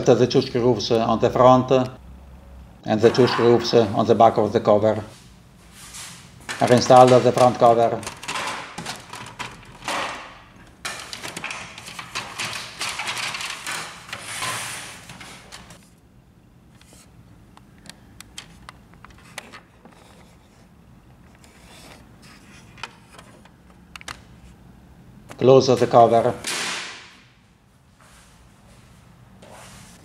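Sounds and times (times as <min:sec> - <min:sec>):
plastic printer cover scraping and clicking: 0:06.6 - 0:10.2, 0:10.8 - 0:15.8.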